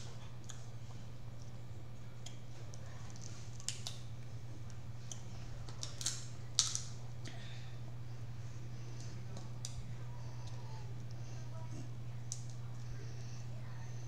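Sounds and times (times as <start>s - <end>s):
low electrical hum: 0.0s - 14.0s
crab shells cracking: 3.1s - 4.1s, 5.1s - 7.4s.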